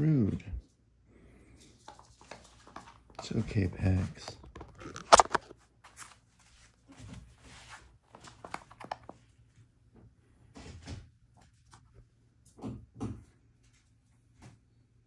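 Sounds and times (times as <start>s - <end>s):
handling rustles and knocks: 1.7s - 9.7s.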